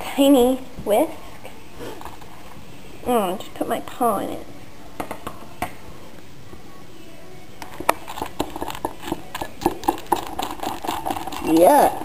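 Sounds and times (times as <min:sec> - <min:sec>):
whisk tapping plastic bowl: 0:07.6 - 0:12.0.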